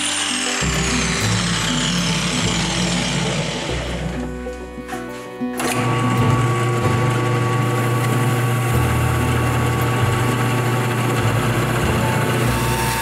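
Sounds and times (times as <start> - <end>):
drill press motor hum: 0.0 - 4.5, 5.6 - 13.0.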